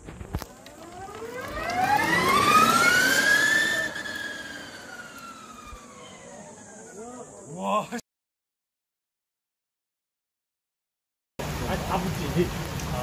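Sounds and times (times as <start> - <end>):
electric race car motor whining: 0.2 - 7.5.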